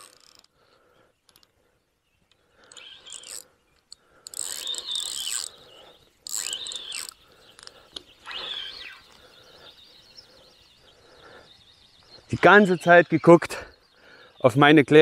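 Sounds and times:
fishing reel drag buzzing: 0:00.0 - 0:00.5, 0:02.6 - 0:09.2.

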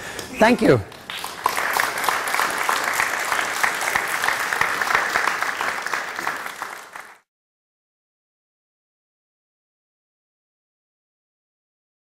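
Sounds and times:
audience applauding: 0:00.2 - 0:07.3.

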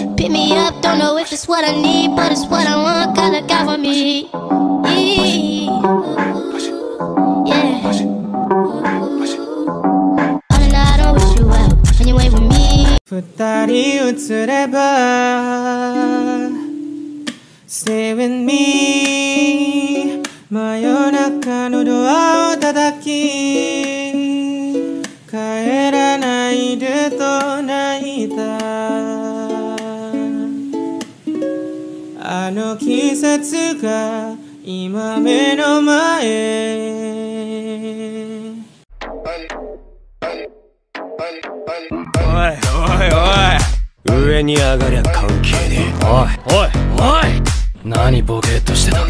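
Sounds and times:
person singing: 0:00.0 - 0:09.9, 0:10.5 - 0:39.6, 0:41.2 - 0:49.0
plucked ukulele-like strings: 0:01.7 - 0:03.9, 0:25.9 - 0:33.6.

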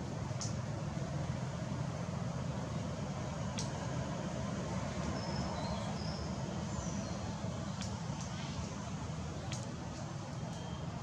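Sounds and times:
low outdoor rumble: 0:00.0 - 0:11.0
faint high chirps: 0:10.5 - 0:11.0.

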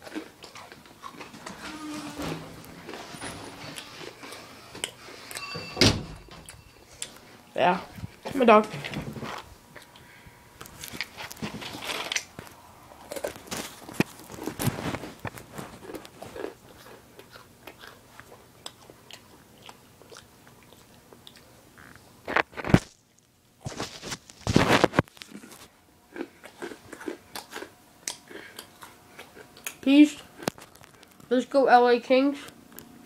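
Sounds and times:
chewing crunchy snack: 0:00.0 - 0:01.4, 0:10.6 - 0:31.3.

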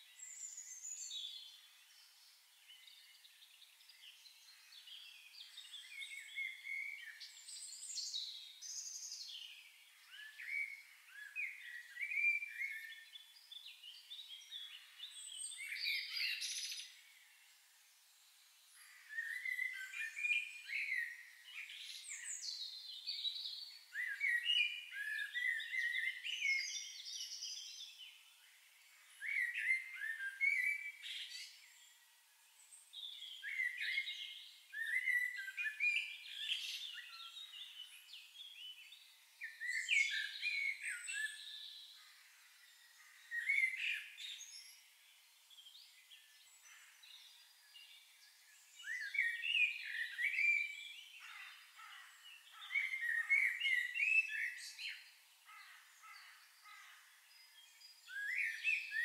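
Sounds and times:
songbirds chirping and warbling: 0:00.0 - 0:59.0.

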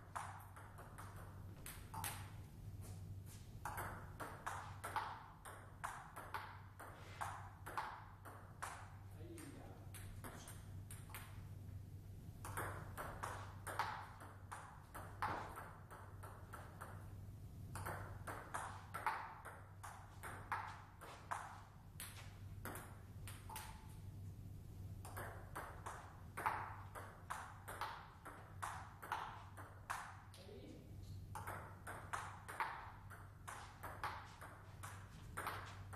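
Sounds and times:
table tennis ball clicking: 0:00.1 - 0:02.4, 0:03.7 - 0:09.0, 0:12.4 - 0:17.1, 0:17.7 - 0:24.0, 0:25.0 - 0:30.4, 0:31.4 - 0:35.9.

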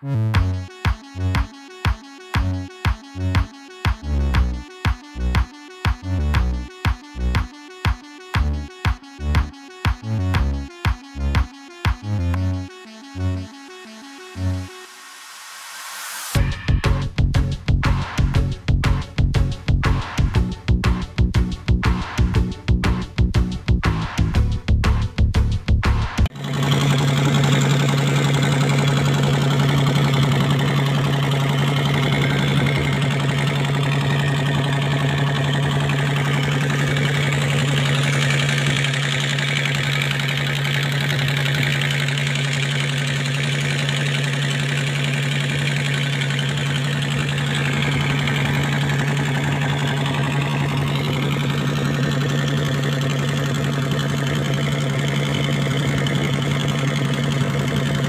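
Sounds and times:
boat engine droning: 0:26.3 - 0:58.0.

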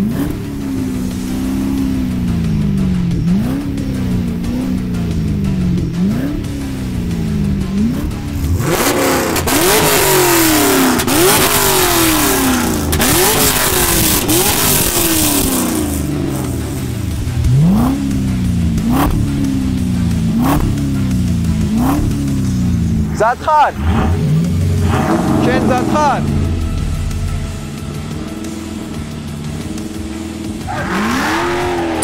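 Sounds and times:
car engines revving: 0:00.0 - 0:32.0.

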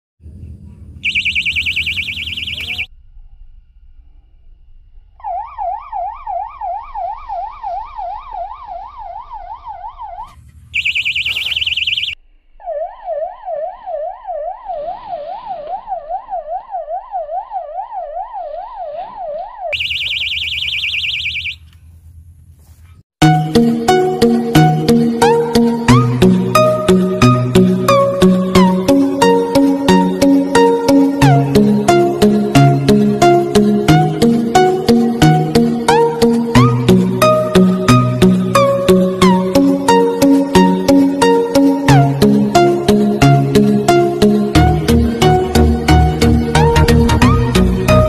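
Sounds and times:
fast high warble alarm: 0:01.0 - 0:02.9, 0:05.2 - 0:21.7
wailing siren tone: 0:01.0 - 0:03.0, 0:05.1 - 0:21.7, 0:23.9 - 0:48.0.

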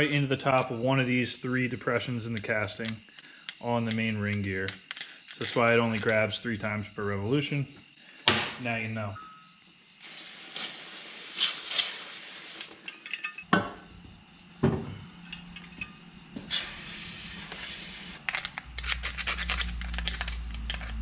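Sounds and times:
spray canister hissing: 0:10.0 - 0:12.8, 0:16.5 - 0:18.2
knocks and clinks: 0:12.8 - 0:13.8.

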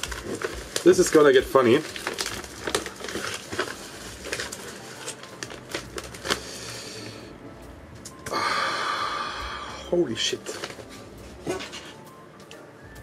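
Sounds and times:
packaging crinkling and rustling: 0:00.0 - 0:06.8, 0:10.2 - 0:12.6.

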